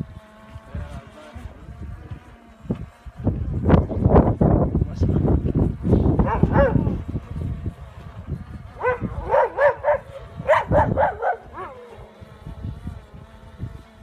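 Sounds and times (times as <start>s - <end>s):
dogs barking: 6.2s - 6.9s, 8.8s - 11.9s.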